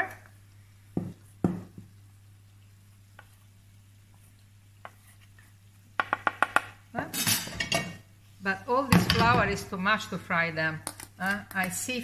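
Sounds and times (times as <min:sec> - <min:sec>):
wooden spoon knocking metal bowl: 0:06.0 - 0:06.8.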